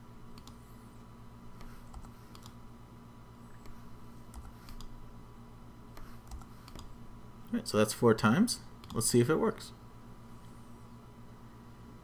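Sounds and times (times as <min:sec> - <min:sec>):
steady low hum: 0:00.0 - 0:12.0
mouse and keyboard clicks: 0:01.6 - 0:02.6, 0:03.6 - 0:04.9, 0:06.0 - 0:06.9.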